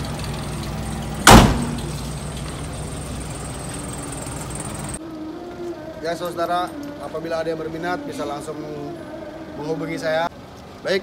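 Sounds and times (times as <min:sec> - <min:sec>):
engine idling: 0:00.0 - 0:11.0
car door slamming: 0:01.2 - 0:02.0.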